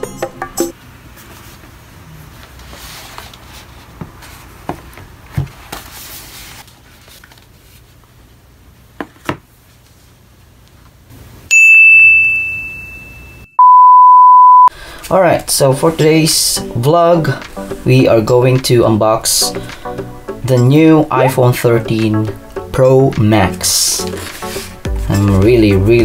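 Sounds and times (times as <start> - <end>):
bell-like ding: 11.5 - 13.6
steady electronic beep tone: 13.4 - 14.7.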